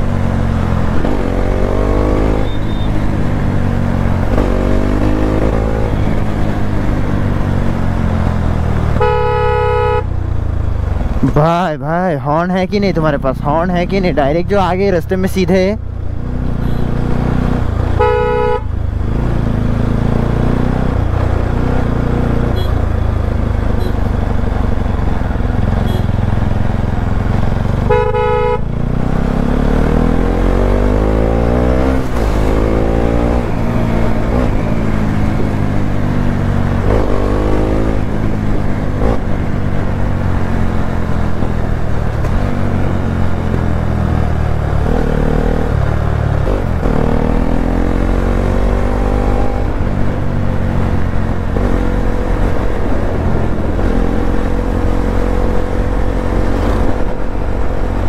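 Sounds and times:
horn honks: 2.2s - 3.1s, 9.0s - 10.2s, 16.6s - 17.0s, 18.0s - 18.7s, 22.5s - 22.8s, 23.8s - 24.1s, 25.7s - 26.3s, 27.8s - 28.7s
motorcycle engine running: 21.1s - 58.0s.

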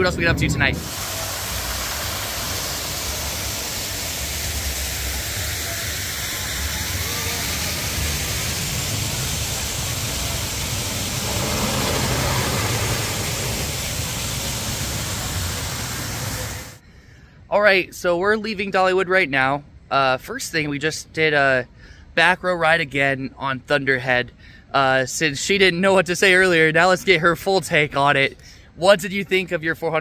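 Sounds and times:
wind rushing over microphone: 0.0s - 1.5s, 7.7s - 16.8s.

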